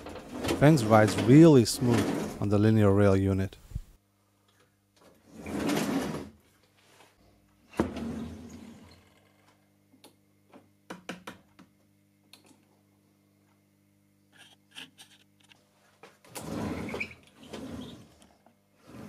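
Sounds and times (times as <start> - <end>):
fence sliding along rail: 0.0 - 2.6.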